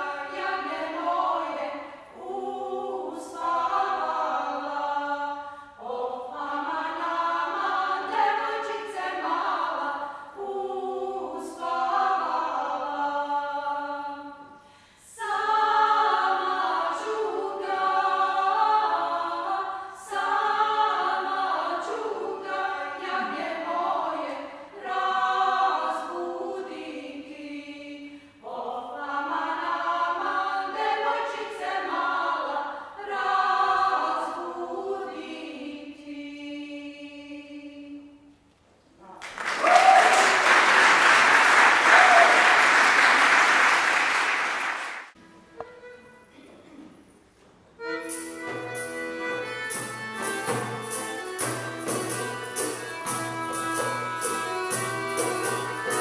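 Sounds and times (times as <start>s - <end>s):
women's choir singing in parts: 0.0s - 38.4s.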